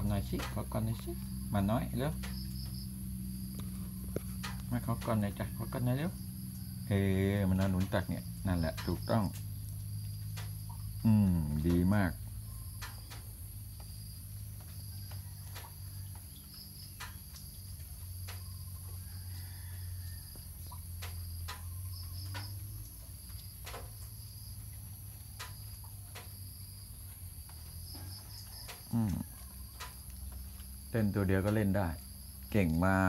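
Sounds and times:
high-pitched insect trilling: 0:00.0 - 0:33.0
low steady hum: 0:00.0 - 0:33.0
faint clicks: 0:03.5 - 0:05.1, 0:08.7 - 0:10.9, 0:16.9 - 0:18.5, 0:20.7 - 0:24.2, 0:25.1 - 0:26.4, 0:27.4 - 0:30.8.

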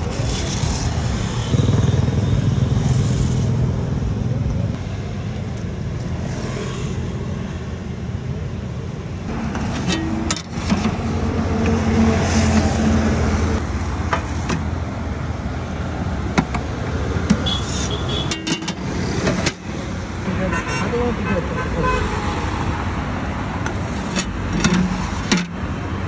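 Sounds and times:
road traffic: 0:00.0 - 0:26.0.

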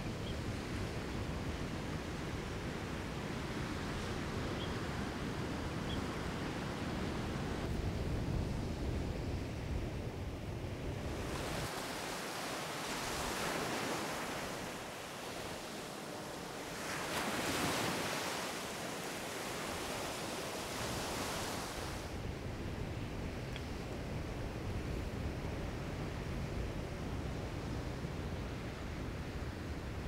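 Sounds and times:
surf breaking on a beach: 0:11.0 - 0:22.2.

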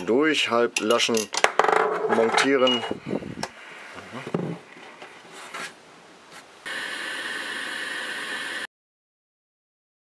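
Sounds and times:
steady hiss with faint tone: 0:02.3 - 0:08.7.

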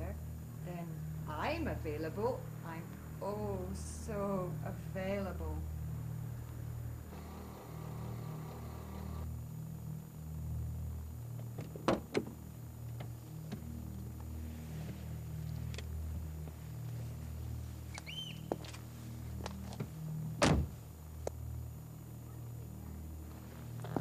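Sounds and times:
low engine rumble: 0:00.0 - 0:24.0
car door opening: 0:11.5 - 0:12.4, 0:19.8 - 0:20.8
car door unlatching clicks: 0:19.8 - 0:20.8.

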